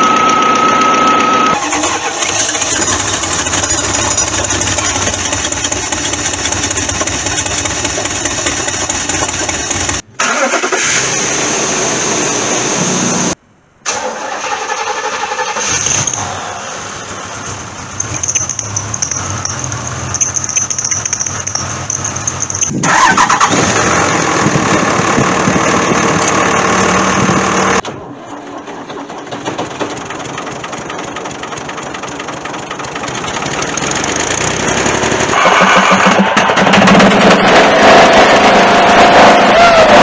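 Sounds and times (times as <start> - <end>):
car engines running: 16.3 - 27.8, 29.0 - 40.0.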